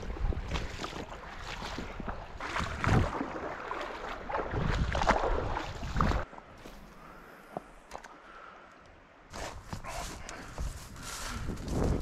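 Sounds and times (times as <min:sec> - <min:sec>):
wind rumbling on microphone: 0:00.0 - 0:06.3, 0:09.3 - 0:12.0
stream water splashing: 0:00.0 - 0:08.2.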